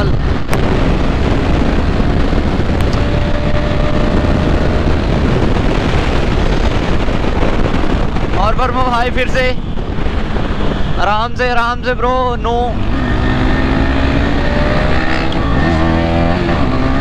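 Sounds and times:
motorcycle engine running: 0.0s - 8.4s
motorcycle road noise: 0.0s - 17.0s
wind rush on microphone: 0.0s - 17.0s.

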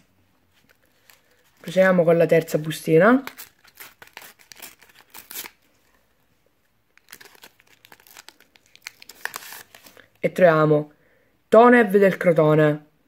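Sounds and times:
wrapper tearing and crinkling: 2.5s - 5.8s, 7.0s - 10.1s.

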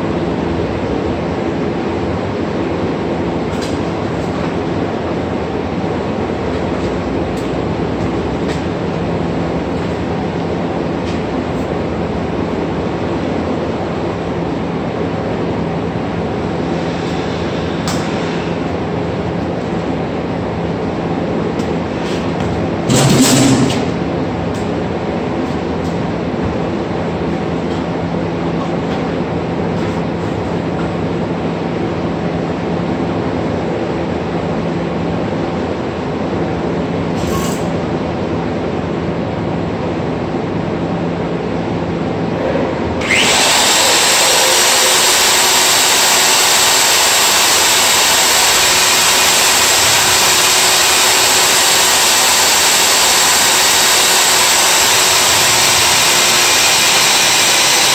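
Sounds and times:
core drill humming: 43.0s - 57.9s
loud rushing hiss: 43.1s - 57.9s.

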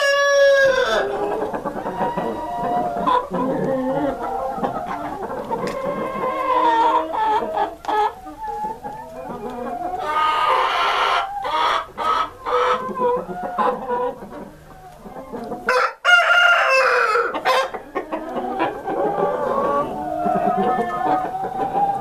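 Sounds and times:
chickens clucking: 0.0s - 22.0s.

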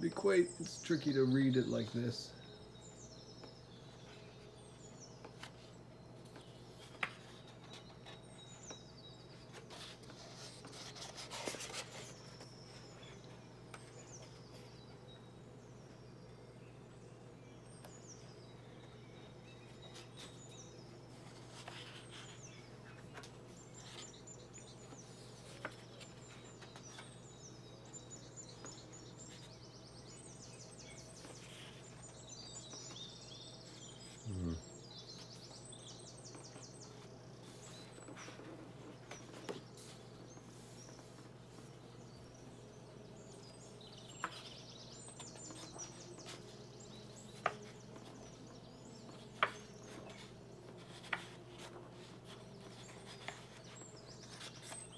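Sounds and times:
faint birds chirping: 0.0s - 54.9s
book pages being turned: 3.3s - 14.9s, 19.5s - 29.8s, 30.9s - 34.2s, 36.2s - 42.2s, 43.4s - 54.9s.

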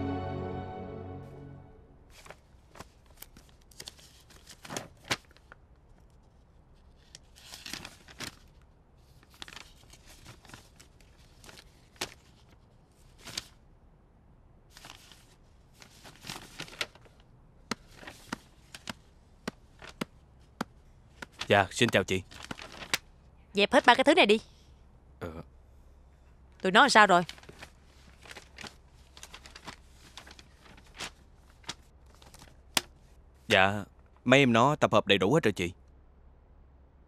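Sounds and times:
paper and plastic folders rustling: 2.1s - 13.6s, 14.7s - 23.1s, 27.1s - 33.1s.

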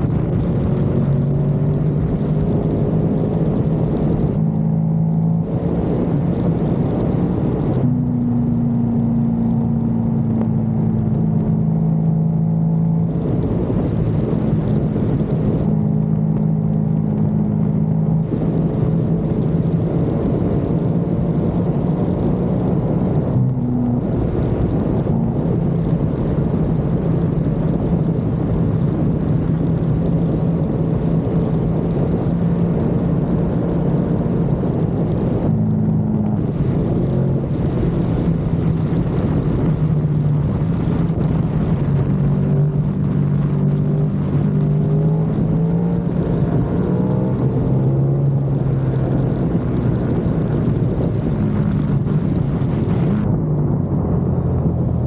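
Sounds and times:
wind rushing: 12.6s - 29.4s, 30.4s - 55.0s.

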